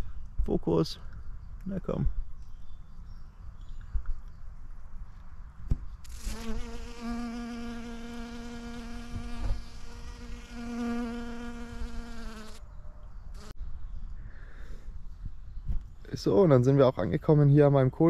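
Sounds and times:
bee buzzing: 6.0 - 12.6, 13.4 - 13.6.

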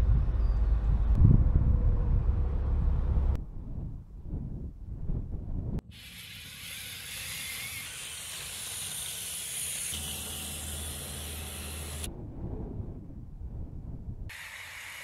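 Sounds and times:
low hum: 0.0 - 5.8.

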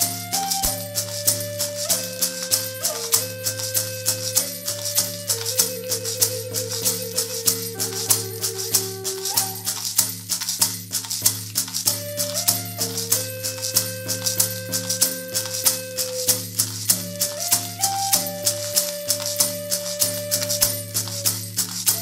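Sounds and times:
flute playing slow melody: 0.0 - 9.8, 12.0 - 22.0
hand drum: 0.0 - 22.0
rattle shaken: 0.0 - 22.0
small bells jingling: 0.0 - 22.0.

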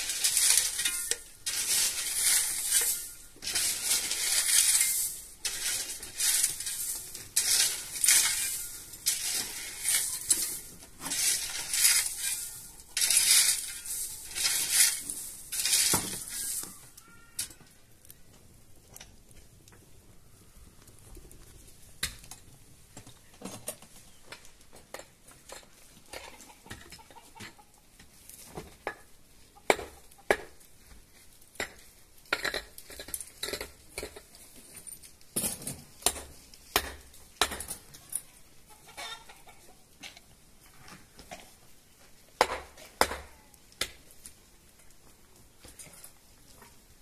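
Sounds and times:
chickens clucking: 25.6 - 28.2, 38.5 - 40.4.

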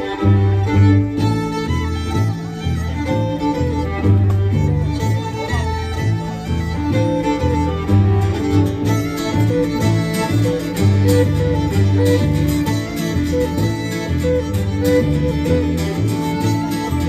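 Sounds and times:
fiddle playing folk tune: 0.0 - 17.0
plucked double bass: 0.0 - 17.0
strummed acoustic guitar: 0.0 - 17.0.

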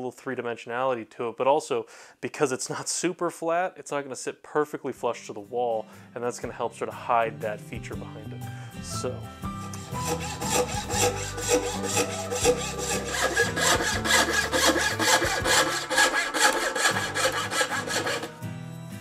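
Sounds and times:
bow saw cutting wood: 9.4 - 18.4.

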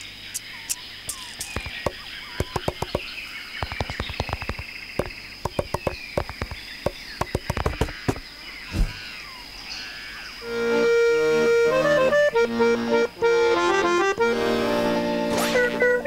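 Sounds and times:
quick irregular clicks: 0.0 - 8.2.

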